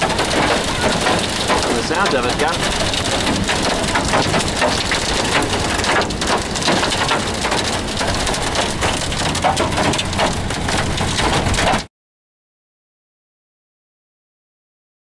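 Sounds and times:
hail clattering on a plastic roof: 0:00.0 - 0:11.9.

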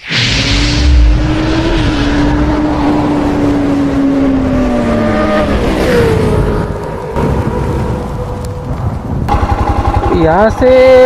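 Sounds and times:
motorcycle engine: 0:09.3 - 0:11.0.

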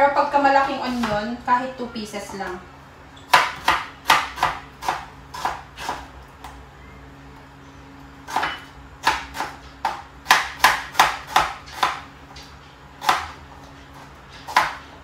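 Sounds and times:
knife chopping on plastic board: 0:03.3 - 0:06.1, 0:08.3 - 0:12.0, 0:13.0 - 0:13.4, 0:14.4 - 0:14.9.

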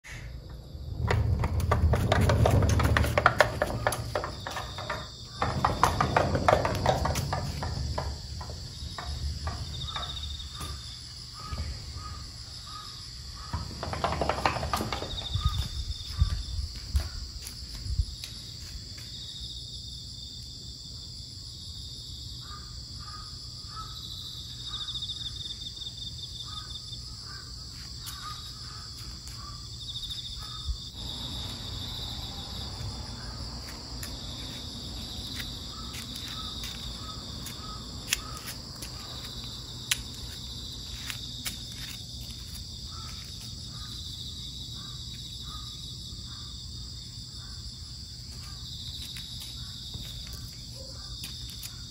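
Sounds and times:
insects chirring: 0:00.1 - 0:51.9
knocks and rustles: 0:00.9 - 0:11.8, 0:13.4 - 0:17.1
bird calling: 0:35.7 - 0:39.2.

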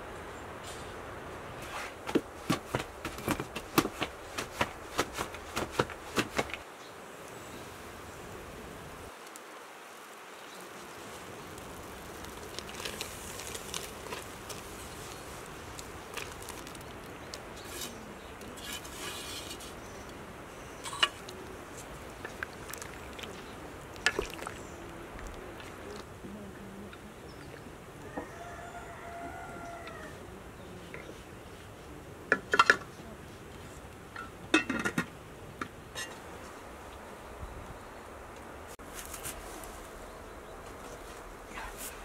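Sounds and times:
steady hiss: 0:04.3 - 0:28.0.

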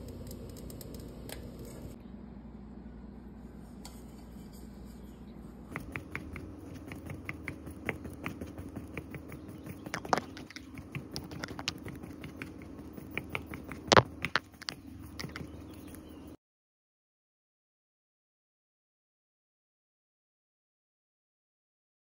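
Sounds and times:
faint steady hum: 0:00.0 - 0:16.4
skewer poking cake: 0:05.7 - 0:15.6.

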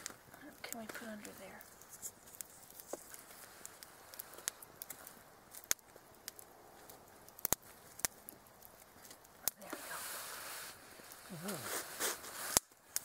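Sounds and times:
campfire crackling and popping: 0:00.0 - 0:13.0
rustling rush: 0:09.6 - 0:12.7.

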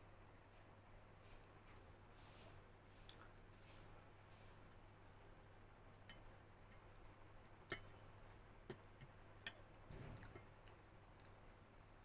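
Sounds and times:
fork tapping ceramic plate: 0:07.7 - 0:08.0.

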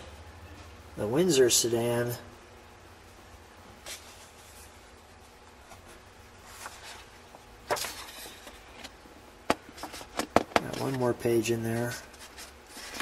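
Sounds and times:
paper pages rustling: 0:03.8 - 0:04.8, 0:05.5 - 0:13.0.

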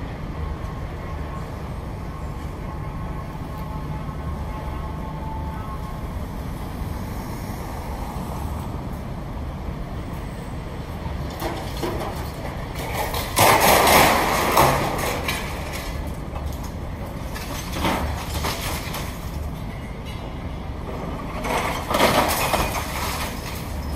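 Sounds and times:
diesel machinery running: 0:00.0 - 0:23.9
rubble crashing: 0:11.3 - 0:19.4, 0:21.2 - 0:23.9.

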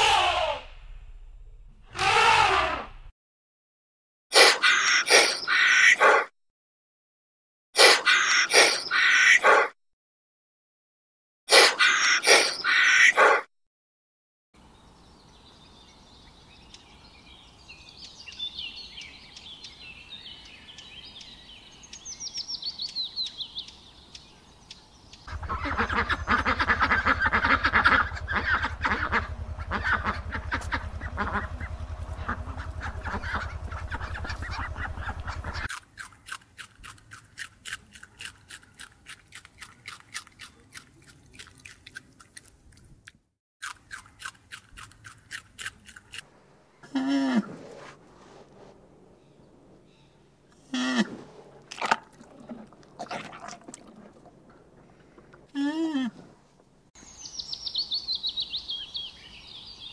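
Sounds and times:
low hum: 0:00.0 - 0:03.1, 0:25.3 - 0:35.7, 0:46.3 - 0:55.6
dense rapid animal calling: 0:01.9 - 0:03.1, 0:25.3 - 0:35.8
high chirping calls: 0:15.3 - 0:35.7, 0:57.0 - 0:59.9.

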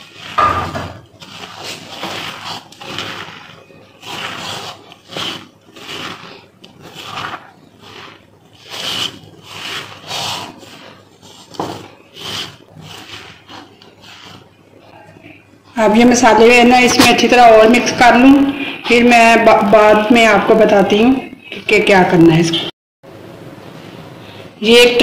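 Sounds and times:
hand squeezing mashed potato: 0:00.0 - 0:15.4.

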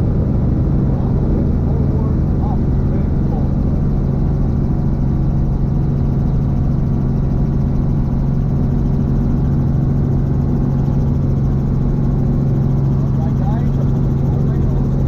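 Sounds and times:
helicopter engine and rotor drone: 0:00.0 - 0:15.0.

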